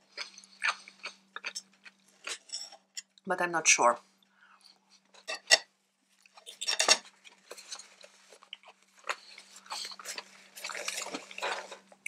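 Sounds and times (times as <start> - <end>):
person chewing salad: 0.0 - 3.2, 6.2 - 12.0.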